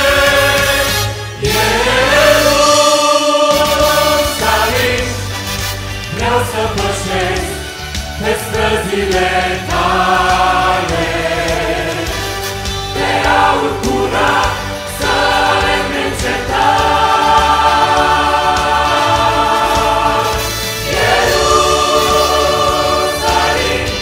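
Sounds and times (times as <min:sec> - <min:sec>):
choir singing a hymn: 0:00.0 - 0:24.0.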